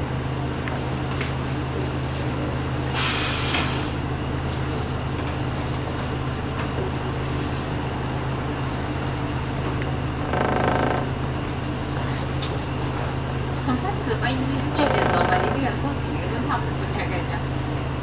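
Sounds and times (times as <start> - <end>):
bus engine running: 0.0 - 18.0
air hiss: 2.9 - 4.0.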